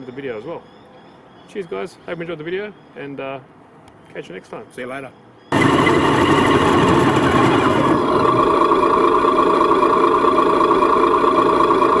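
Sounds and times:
simulated engine idle: 5.5s - 12.0s.

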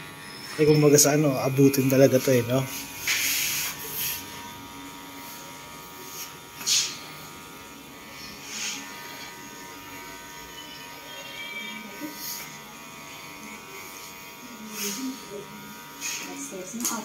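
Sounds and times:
hair clipper buzzing: 0.0s - 17.0s
hissing clipper scrapes: 2.7s - 4.4s, 6.1s - 7.2s, 8.2s - 9.4s, 15.9s - 16.9s.

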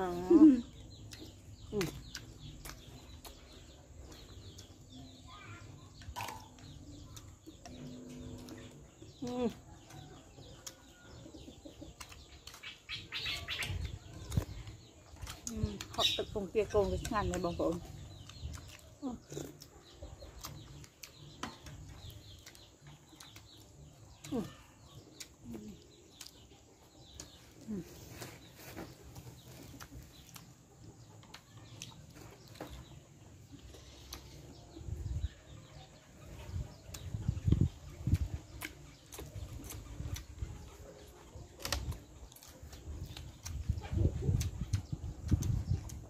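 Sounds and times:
small birds chirping: 0.0s - 46.0s
spoon clicks and mouth sounds: 17.8s - 26.5s, 38.0s - 40.4s.

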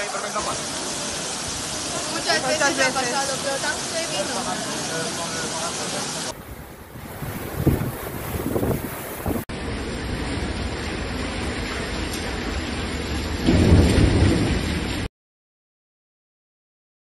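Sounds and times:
heavy rain pouring: 0.0s - 15.1s
low rumble of thunder: 6.4s - 15.1s.

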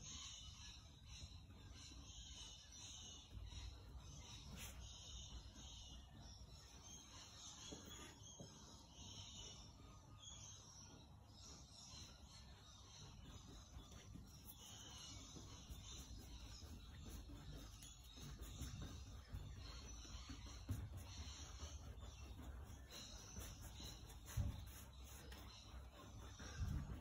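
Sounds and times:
paintbrush swishing on canvas: 13.6s - 27.0s.

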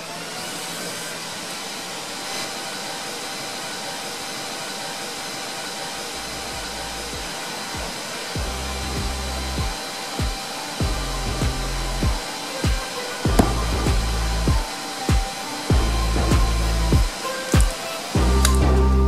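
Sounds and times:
electric fan whirring: 0.0s - 19.0s
background music with bass: 6.2s - 19.0s.

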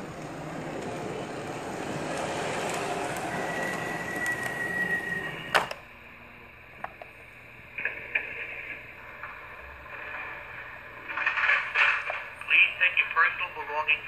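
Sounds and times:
model train rumbling on track: 0.0s - 5.7s
high squeal: 2.8s - 5.7s.

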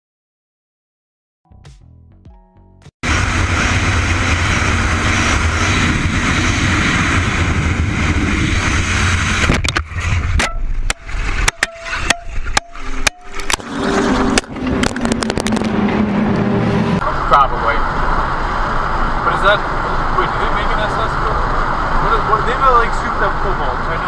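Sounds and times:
car road and engine noise: 3.0s - 24.0s
sharp clicks and knocks: 9.4s - 13.6s, 14.3s - 16.5s.

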